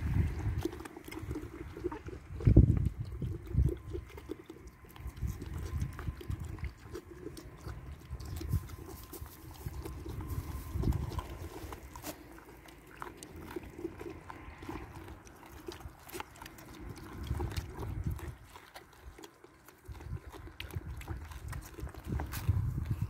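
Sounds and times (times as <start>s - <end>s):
low rumbling bumps: 0.0s - 0.6s
goats chewing: 0.0s - 23.0s.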